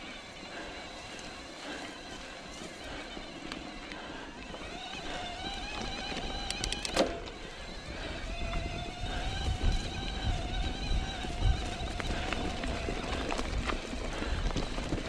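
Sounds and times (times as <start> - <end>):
electric bike motor whining: 0.0 - 15.0
quick run of clicks: 0.5 - 15.0
wind rumble on microphone: 7.6 - 15.0.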